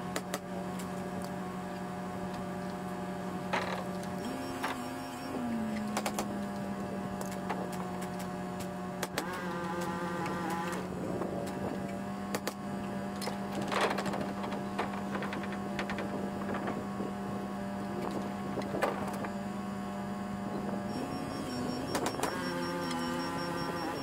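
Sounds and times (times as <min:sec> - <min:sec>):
steady machine hum: 0:00.0 - 0:24.0.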